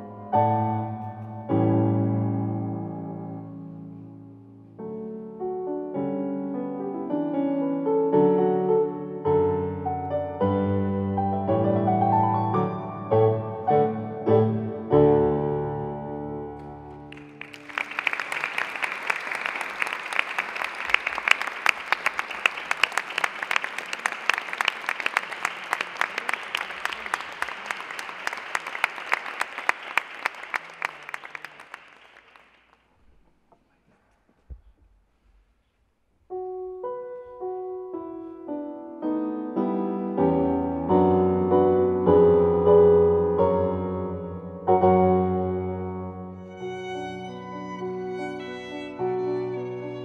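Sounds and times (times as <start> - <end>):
audience applauding: 16.9 - 32.9
digital piano playing: 36.4 - 50.0.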